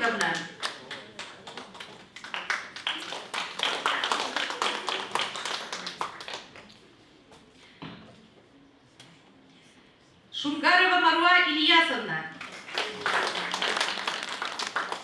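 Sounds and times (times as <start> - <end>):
audience applause: 0.6 - 6.6, 12.4 - 15.0.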